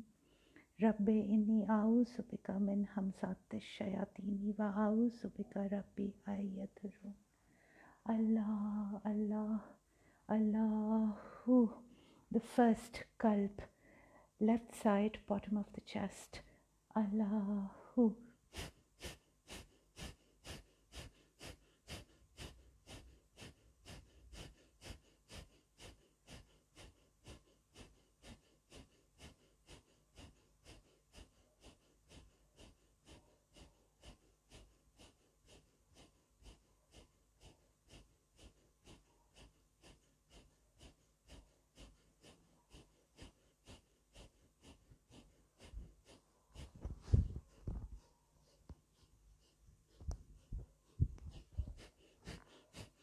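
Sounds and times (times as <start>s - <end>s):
rapid rhythmic breathing: 16.1s - 53.0s.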